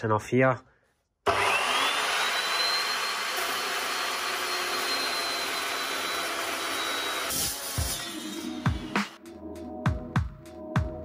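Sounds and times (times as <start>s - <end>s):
chop saw cutting metal: 1.3s - 9.2s.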